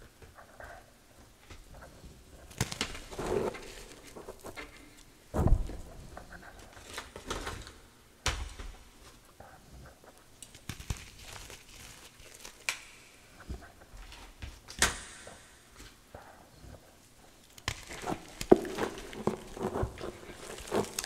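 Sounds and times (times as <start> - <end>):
wet chalk crunching and squishing: 10.6 - 12.9, 17.5 - 21.0
sharp crackles: 17.4 - 21.0.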